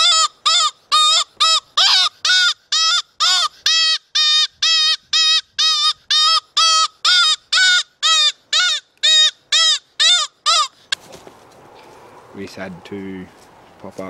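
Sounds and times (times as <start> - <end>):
predator whistle squeals: 0.0 - 10.7.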